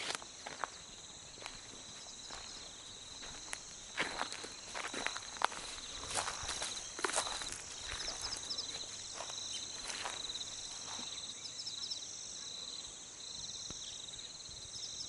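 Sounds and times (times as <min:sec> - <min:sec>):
cricket trill: 0:00.0 - 0:15.0
high steady insect hiss: 0:00.0 - 0:15.0.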